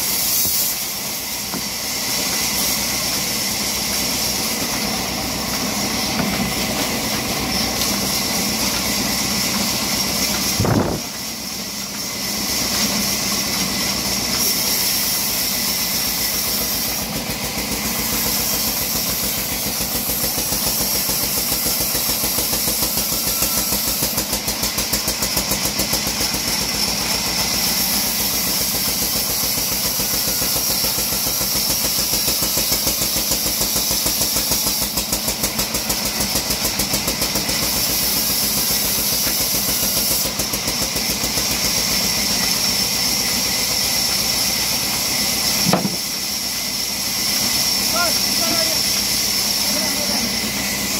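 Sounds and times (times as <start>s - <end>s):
bandsaw running: 0.0s - 50.9s
knock: 45.7s - 46.0s.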